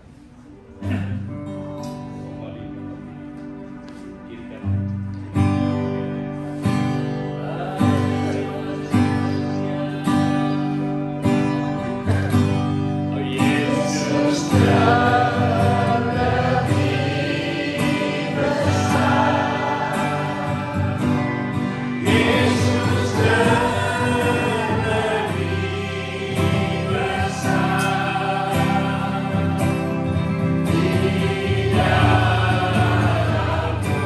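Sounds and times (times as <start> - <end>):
acoustic guitars strumming: 0.0 - 34.0
voices singing together: 7.1 - 34.0.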